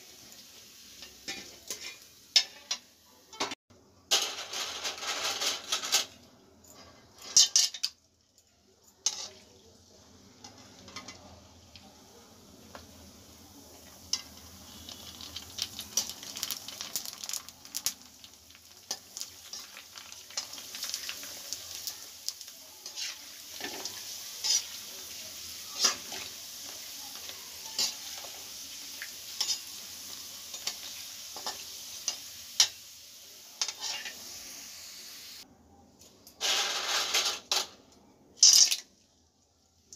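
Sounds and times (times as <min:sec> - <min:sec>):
deep-frying sizzle in oil: 0:00.0 - 0:03.4, 0:07.0 - 0:35.5.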